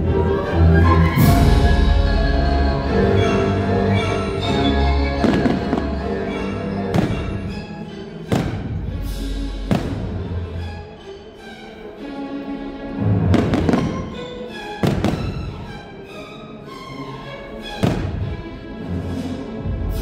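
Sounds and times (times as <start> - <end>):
orchestral music with strings: 0.0 - 20.0
fireworks bangs: 6.9 - 7.5, 8.3 - 8.8, 9.7 - 10.2, 13.3 - 14.1, 14.8 - 15.4, 17.8 - 18.2.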